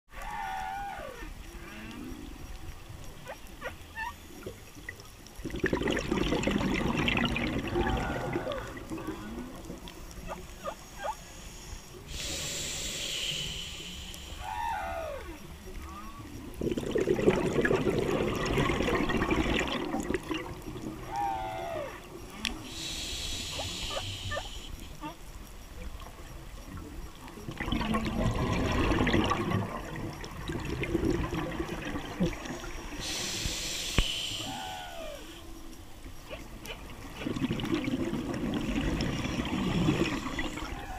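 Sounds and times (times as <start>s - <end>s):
whale song moans: 0.1s - 4.6s, 6.2s - 11.3s, 14.2s - 26.0s, 34.1s - 36.3s, 38.3s - 40.9s
bubbling exhaled air: 5.4s - 9.9s, 16.5s - 21.2s, 27.4s - 35.3s, 37.1s - 40.9s
regulator hiss on inhale: 10.8s - 15.0s, 22.5s - 25.0s, 32.4s - 36.2s.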